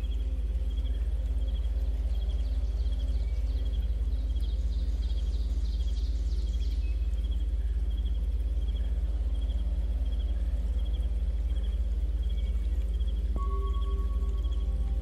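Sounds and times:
insects chirping in pulses: 0.0s - 15.0s
steady low hum: 0.0s - 15.0s.

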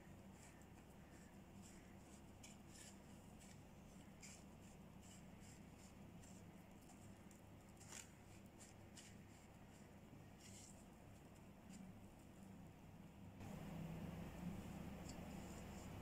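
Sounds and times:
breadcrumbs rustling under fingers: 0.0s - 12.5s
low steady hum: 0.0s - 16.0s.

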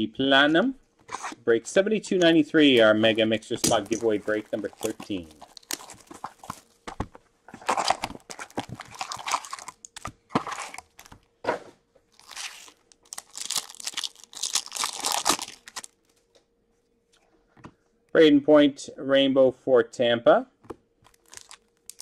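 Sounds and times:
plastic shrink wrap tearing: 2.7s - 6.8s, 7.6s - 11.2s, 12.1s - 16.1s, 21.0s - 22.0s
foil pack tearing open: 2.8s - 6.8s, 7.6s - 11.2s, 12.2s - 16.0s, 21.1s - 22.0s.

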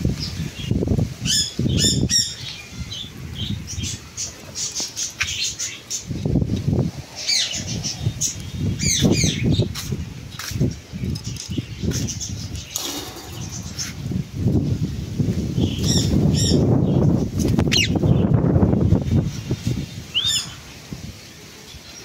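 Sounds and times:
parakeets chirping shrilly: 0.6s - 6.2s, 7.2s - 14.2s, 15.6s - 17.0s, 17.6s - 18.2s.

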